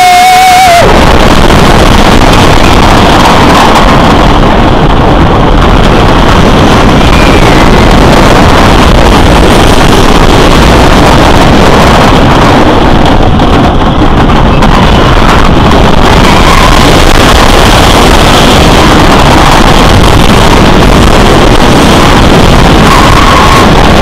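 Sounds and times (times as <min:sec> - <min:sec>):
roller coaster train on wooden track: 0:00.0 - 0:24.0
wind blowing on microphone: 0:00.0 - 0:24.0.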